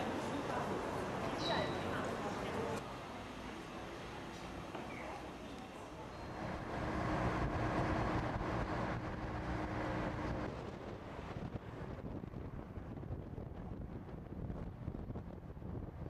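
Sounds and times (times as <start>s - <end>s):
car road and wind noise: 6.4s - 16.0s.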